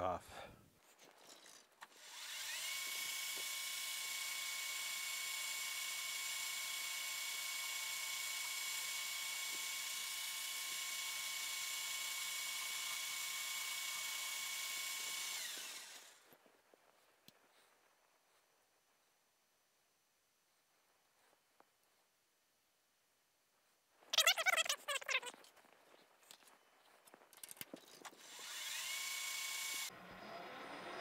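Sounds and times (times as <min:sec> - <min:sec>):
turning tool cutting metal: 0:01.8 - 0:16.2, 0:28.1 - 0:29.9
lathe spindle whining: 0:01.9 - 0:16.2, 0:28.2 - 0:31.0.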